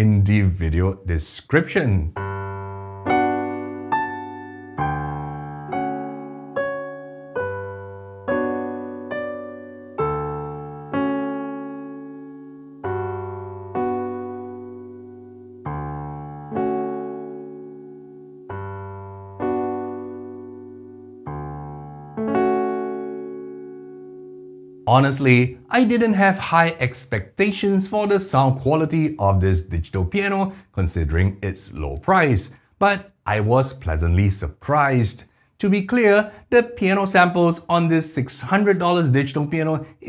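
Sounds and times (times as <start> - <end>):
piano chords ringing: 2.1 - 28.6.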